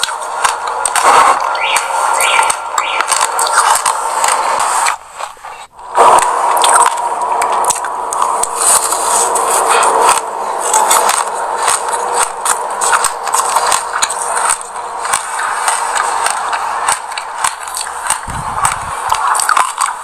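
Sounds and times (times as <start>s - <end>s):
chewing crunchy seeds: 0.0s - 20.0s.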